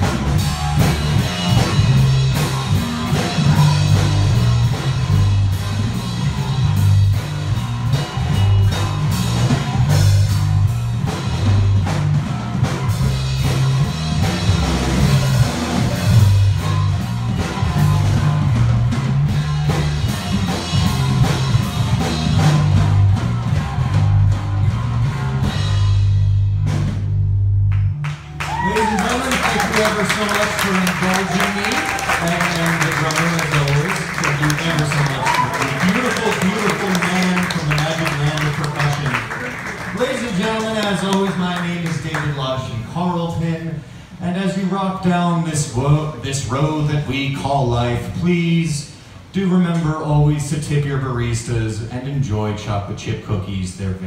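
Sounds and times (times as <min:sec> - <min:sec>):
electric bass guitar: 0:00.0 - 0:40.4
busy drumming: 0:00.0 - 0:43.6.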